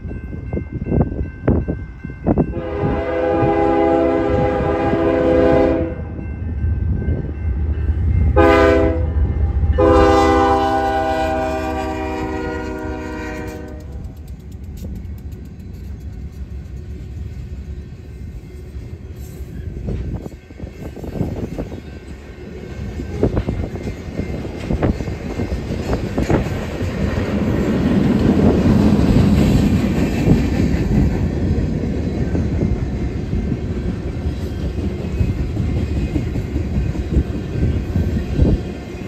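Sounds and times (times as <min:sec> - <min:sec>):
train rumbling past: 0:00.0 - 0:39.0
locomotive air horn blasts: 0:02.5 - 0:06.2, 0:08.4 - 0:09.2, 0:09.8 - 0:14.0
wheels clattering on rails: 0:12.6 - 0:39.0.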